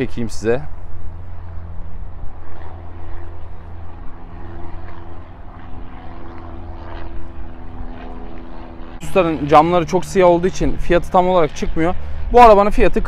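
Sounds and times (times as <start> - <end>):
deep rumble: 0.0 - 12.7
low mechanical drone: 0.0 - 13.0
steady humming tones: 0.0 - 13.0.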